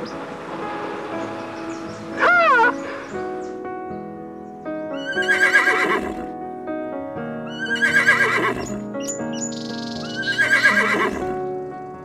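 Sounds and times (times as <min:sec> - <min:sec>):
background music of steady notes: 0:00.0 - 0:12.0
animal's wavering call: 0:02.2 - 0:02.9.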